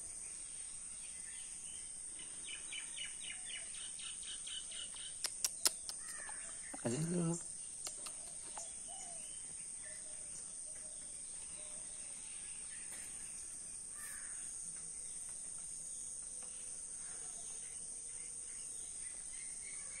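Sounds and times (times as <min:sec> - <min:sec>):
insects chirring: 0:00.0 - 0:20.0
faint short bird calls: 0:04.5 - 0:10.0, 0:12.8 - 0:14.5.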